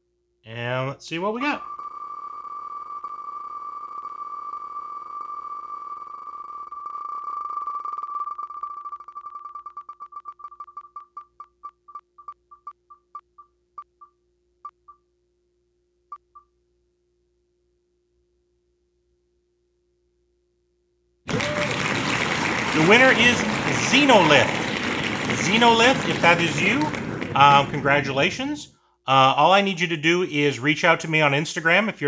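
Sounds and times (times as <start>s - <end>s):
spinning wheel ticking: 1.4s - 15.0s
loud burst of noise: 21.3s - 28.0s.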